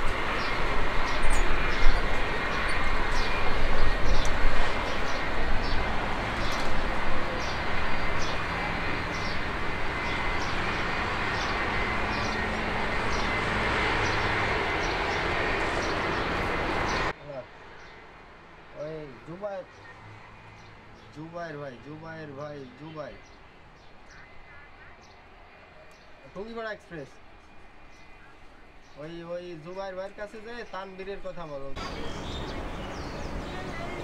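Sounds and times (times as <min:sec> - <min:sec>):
jet engines roaring: 0:00.0 - 0:18.4
bird chirping: 0:22.5 - 0:25.2, 0:31.8 - 0:34.0.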